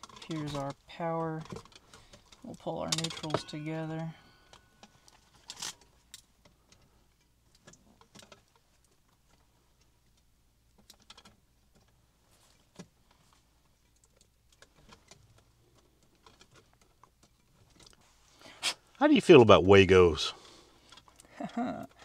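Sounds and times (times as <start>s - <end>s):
small clicks of electrical wiring work: 0.0s - 3.3s, 4.4s - 18.1s.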